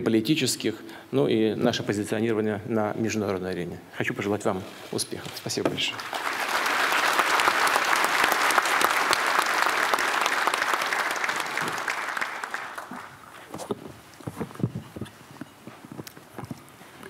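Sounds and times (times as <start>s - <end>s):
audience applauding: 5.9s - 13.4s.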